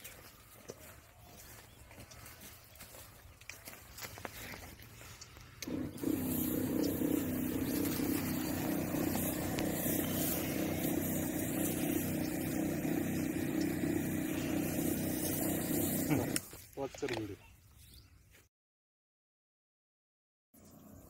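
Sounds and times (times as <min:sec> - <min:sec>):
spray hissing: 0:05.6 - 0:16.5
sprayer pump humming: 0:05.6 - 0:16.6.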